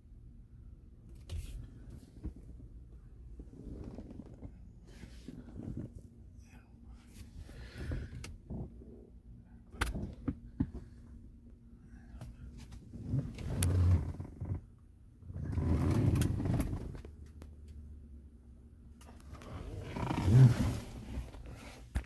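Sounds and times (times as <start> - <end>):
car cabin road rumble: 1.0 - 22.0.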